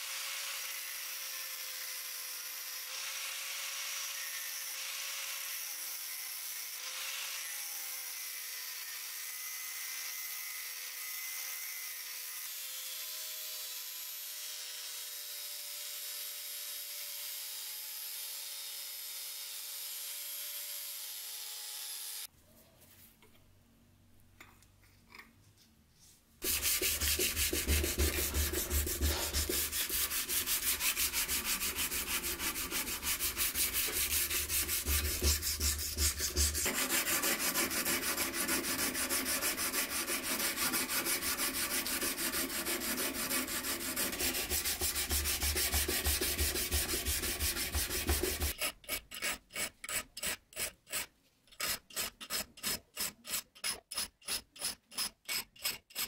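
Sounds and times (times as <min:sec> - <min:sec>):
file rasping on blade: 0:26.4 - 0:56.0
knife blade being hand-sanded: 0:26.4 - 0:56.0.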